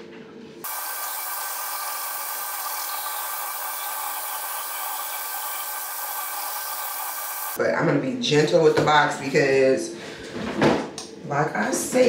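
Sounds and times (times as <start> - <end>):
electric toothbrush running: 0.6 - 7.6.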